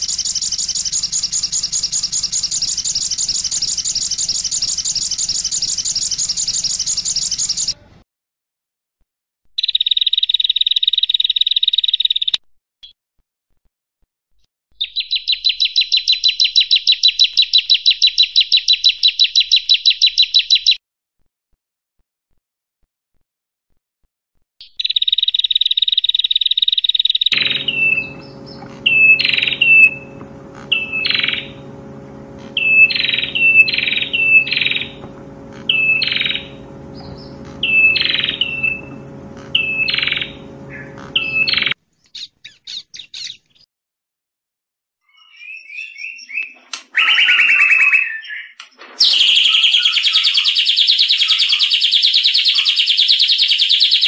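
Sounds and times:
bird chirps: 0.0 - 7.8, 9.6 - 13.0, 14.8 - 20.8, 24.6 - 43.6, 45.0 - 54.0
buzzy bird trill: 0.0 - 7.8, 24.6 - 43.4, 49.0 - 54.0
loud chattering bird trill: 0.0 - 7.8, 24.6 - 43.5, 49.0 - 54.0
low hum: 0.0 - 7.8, 27.4 - 41.8.

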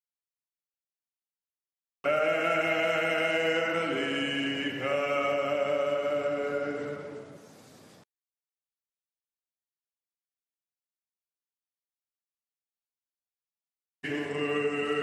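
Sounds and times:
choir-like sustained chords: 2.1 - 7.4, 14.0 - 15.0.

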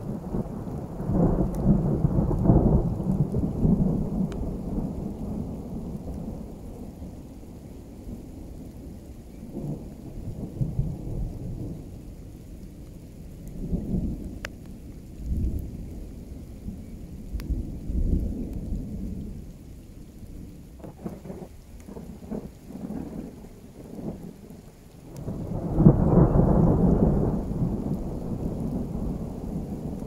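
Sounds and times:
thunder rumbling: 0.0 - 12.3, 20.3 - 30.0
steady falling rain: 0.0 - 30.0.

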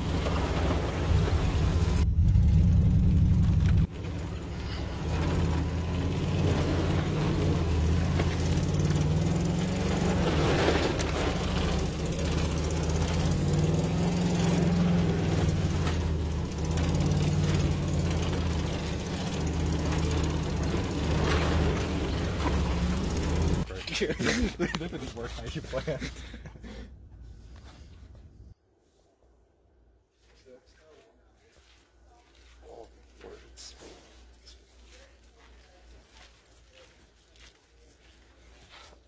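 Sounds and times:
loud engine rumble: 0.0 - 25.0
truck engine: 0.0 - 25.9.

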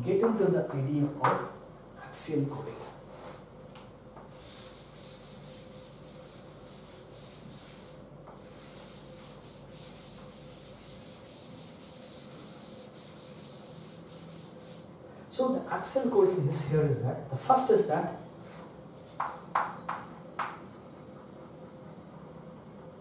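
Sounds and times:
duster rubbing chalkboard: 4.3 - 14.9, 18.4 - 19.6.

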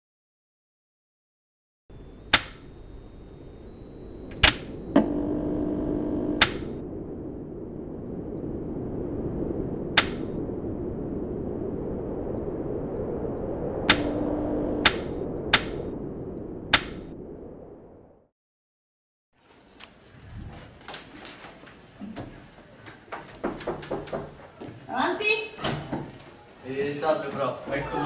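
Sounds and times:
television static hiss: 1.9 - 6.9, 9.9 - 10.4, 13.9 - 15.8
steady hum: 1.9 - 18.2
sharp clicks: 2.0 - 6.8, 9.9 - 10.4, 13.0 - 15.9, 16.7 - 17.2.

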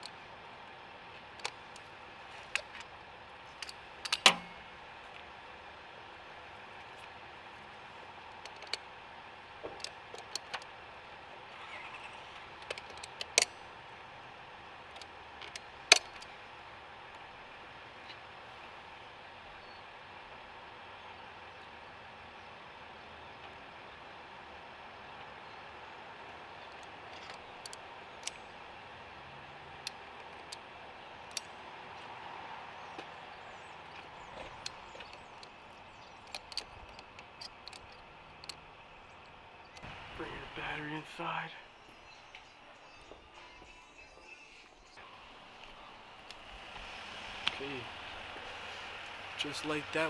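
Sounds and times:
outdoor background hiss: 0.0 - 50.0
pliers clicking on metal clamp: 36.2 - 38.6.

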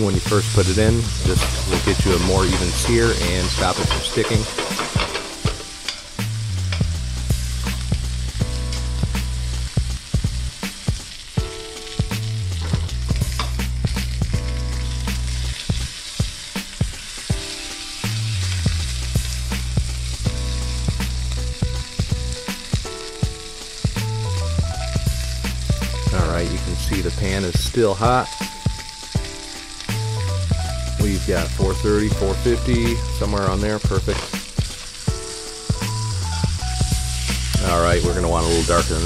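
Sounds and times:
music bass line: 0.0 - 10.6, 12.0 - 15.9, 18.2 - 22.5, 24.0 - 28.2, 29.9 - 34.4, 35.2 - 39.0
steak sizzling in a skillet: 0.0 - 39.0
metal tongs scraping a pan: 0.1 - 7.0, 33.2 - 35.1.

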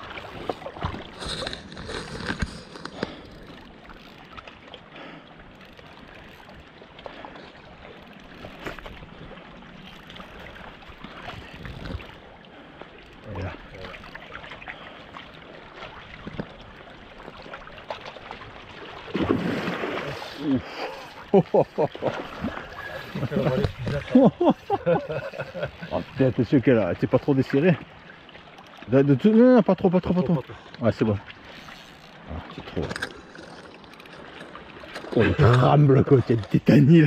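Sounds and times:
river water lapping at bank: 0.0 - 37.0.

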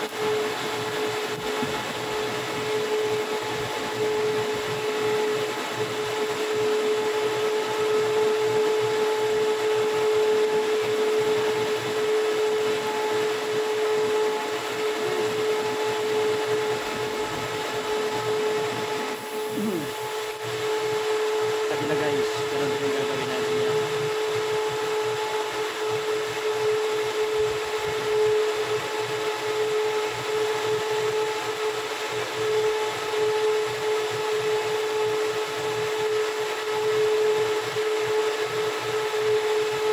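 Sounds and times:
machine motor humming: 0.0 - 31.2.

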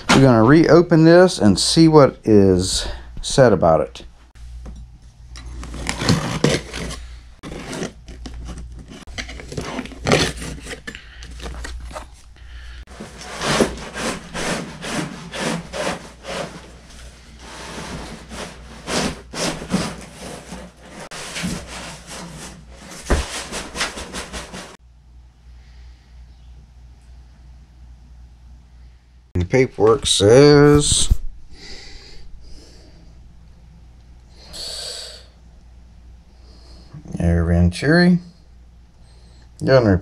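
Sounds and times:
cardboard scraping and rubbing: 5.5 - 12.2, 12.9 - 24.8.

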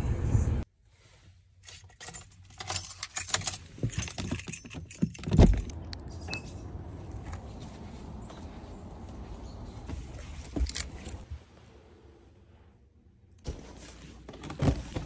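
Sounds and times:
keys jangling: 1.6 - 5.7.

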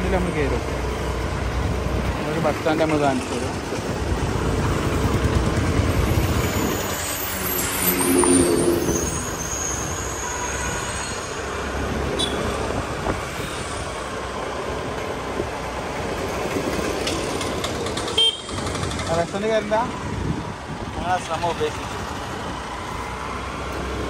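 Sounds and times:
passing vehicle: 0.0 - 24.0
wind and road noise: 0.0 - 24.0
scooter engine: 0.2 - 8.8, 14.2 - 20.0
short pitched tone: 7.6 - 9.6.

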